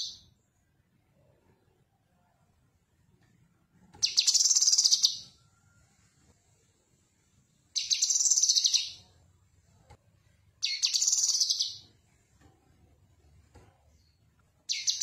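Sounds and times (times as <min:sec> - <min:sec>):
bird singing high trills: 0:04.0 - 0:05.4, 0:07.8 - 0:09.0, 0:10.6 - 0:11.8, 0:14.7 - 0:15.0.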